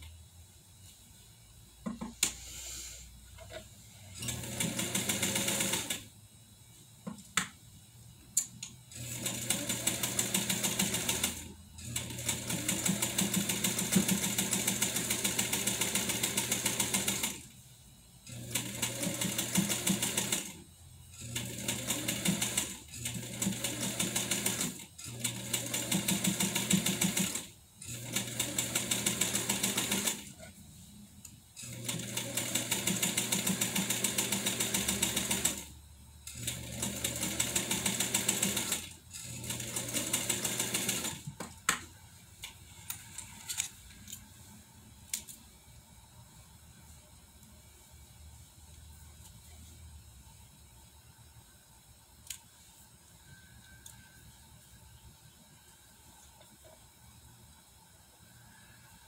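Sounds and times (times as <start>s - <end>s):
sewing machine stitching: 4.1s - 6.1s, 8.9s - 17.5s, 18.3s - 20.6s, 21.2s - 30.5s, 31.6s - 35.7s, 36.3s - 41.4s.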